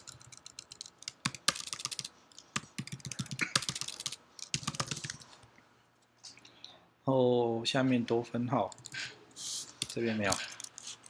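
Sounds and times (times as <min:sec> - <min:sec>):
computer keyboard typing: 0:00.0 - 0:05.3, 0:08.7 - 0:09.0, 0:09.8 - 0:11.0.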